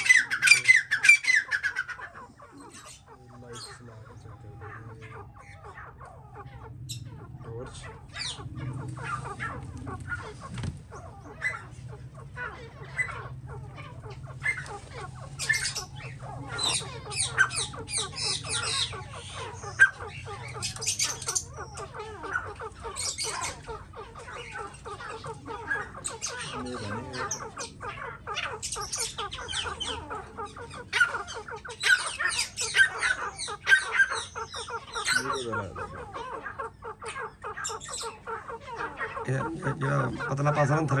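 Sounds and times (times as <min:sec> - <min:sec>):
birds squawking: 0:00.0 - 0:41.0.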